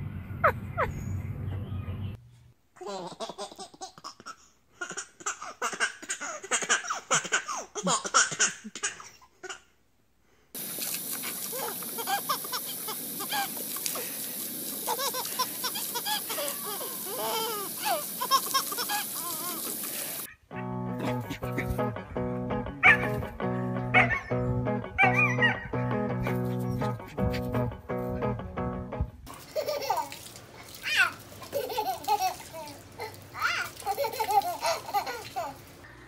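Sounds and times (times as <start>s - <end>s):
baby giggling and laughing: 2.8s - 9.7s, 11.5s - 13.6s, 14.8s - 19.9s, 29.5s - 30.2s, 31.5s - 35.6s
garden hose spraying: 10.6s - 20.3s, 29.2s - 35.9s.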